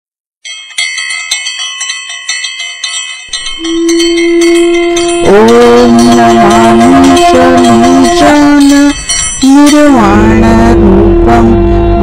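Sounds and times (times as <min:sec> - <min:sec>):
hand bell ringing rapidly: 0:00.4 - 0:10.4
wavering sliding melody: 0:02.4 - 0:12.0
steady low drone: 0:03.3 - 0:12.0.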